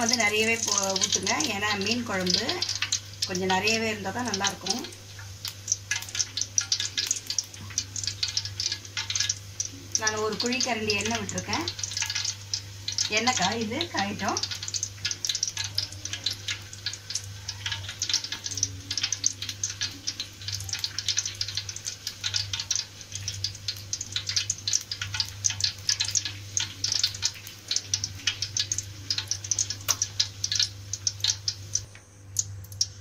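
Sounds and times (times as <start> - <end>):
low steady hum: 0.0 - 33.0
oil crackling and sizzling: 0.0 - 33.0.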